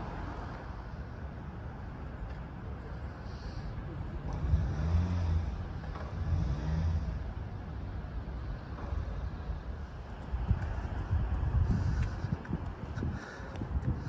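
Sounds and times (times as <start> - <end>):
street background noise: 0.0 - 14.0
car driving past: 4.2 - 8.0.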